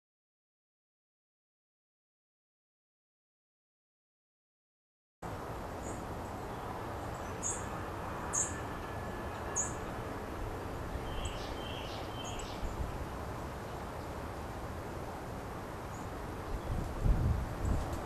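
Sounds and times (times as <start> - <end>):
steady background hiss: 5.2 - 18.0
small birds chirping: 5.8 - 13.0.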